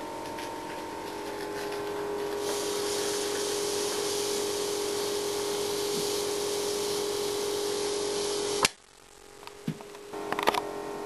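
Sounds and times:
constant hum: 0:00.0 - 0:11.0
steam hissing: 0:02.4 - 0:08.8.

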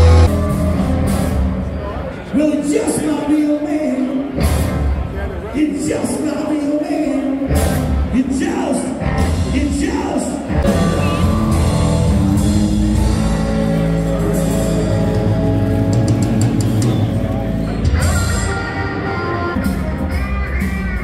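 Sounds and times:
heavy bass: 0:00.0 - 0:02.0, 0:09.0 - 0:21.0.

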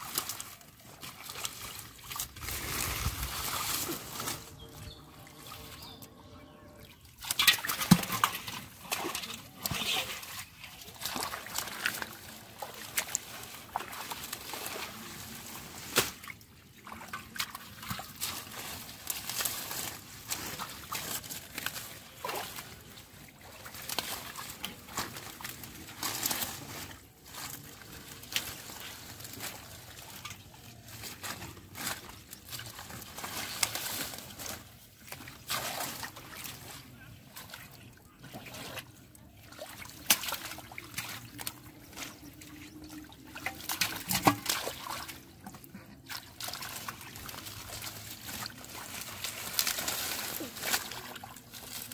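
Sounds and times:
splashes: 0:00.0 - 0:04.6, 0:07.0 - 0:51.9
muddy water sloshing: 0:00.0 - 0:51.9
wet crackles: 0:17.2 - 0:51.9.

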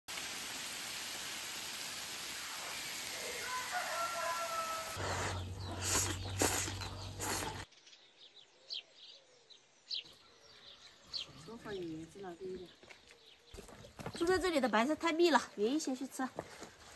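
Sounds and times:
steady hiss: 0:00.1 - 0:07.6
rooster crowing: 0:03.1 - 0:05.4
bird chirps: 0:05.0 - 0:14.3.

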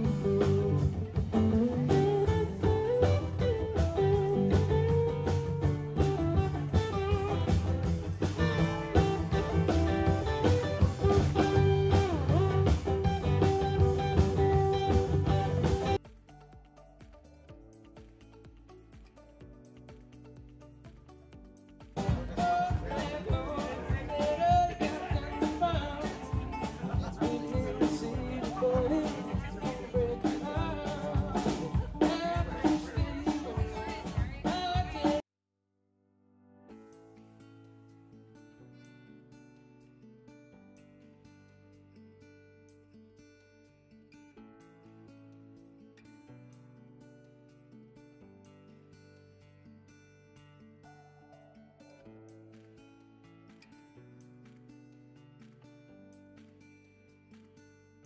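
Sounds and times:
drum kit beat: 0:00.0 - 0:35.2
electric and acoustic guitars: 0:00.0 - 0:35.2, 0:36.7 - 0:58.0
man singing: 0:22.0 - 0:35.2.

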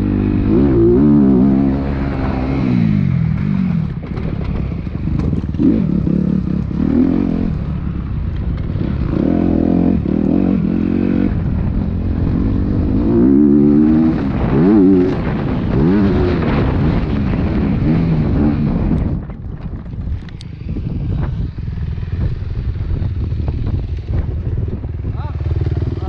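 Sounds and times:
dirt bike engine revving: 0:00.0 - 0:19.2.

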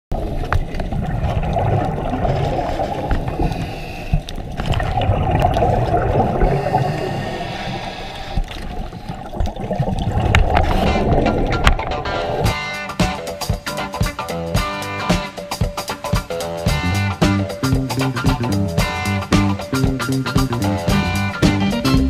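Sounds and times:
muffled underwater rushing: 0:00.1 - 0:13.8.

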